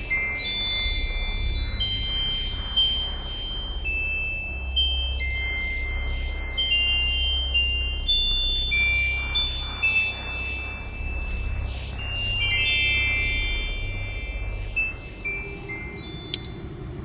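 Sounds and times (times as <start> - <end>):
low steady drone: 0.0 - 17.0
pulsing hiss: 0.0 - 17.0
high chime-like tones ringing: 3.8 - 17.0.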